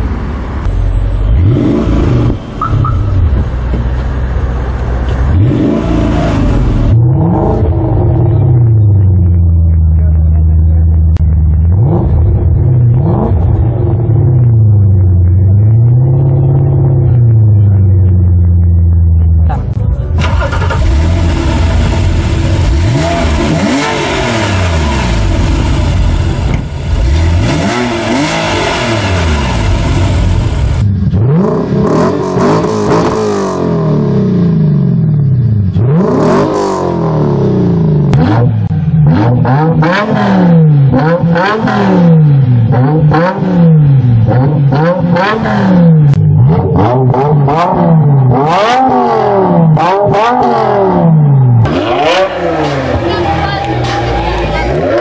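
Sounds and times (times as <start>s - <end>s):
sports car exhaust revving: 0.5s - 55.0s
sharp rev blips: 0.6s - 3.3s.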